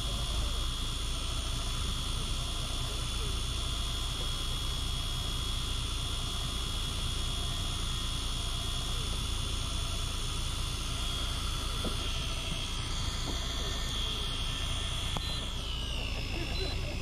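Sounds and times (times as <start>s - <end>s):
motor running with whine: 0.0s - 17.0s.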